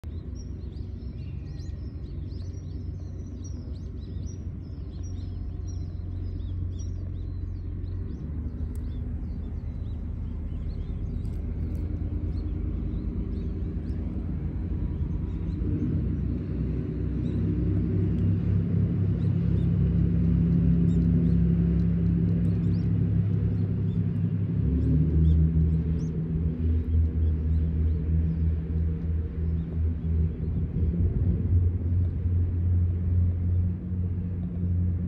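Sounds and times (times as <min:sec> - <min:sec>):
small birds chirping: 0:00.0 - 0:35.0.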